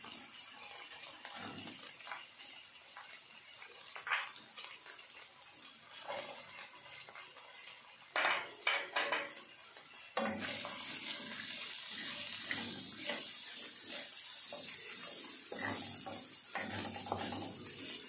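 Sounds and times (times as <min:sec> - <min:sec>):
tap water running into sink: 0:01.2 - 0:05.1, 0:08.1 - 0:18.0.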